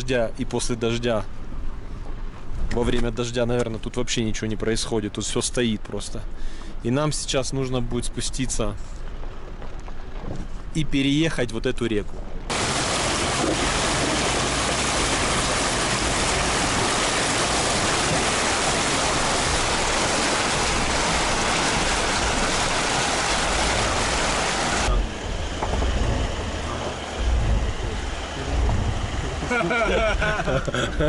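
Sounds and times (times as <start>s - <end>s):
low thumps: 12.2s - 30.6s
river water splashing against car: 12.5s - 30.8s
car engine running: 12.5s - 31.0s.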